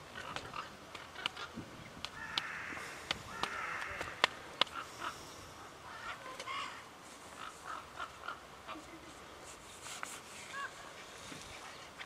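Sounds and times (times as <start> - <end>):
crows cawing: 2.2 - 5.2.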